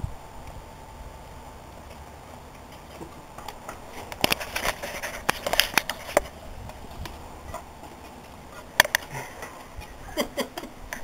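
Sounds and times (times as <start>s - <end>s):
sharp irregular clicks and knocks: 8.8s - 9.9s.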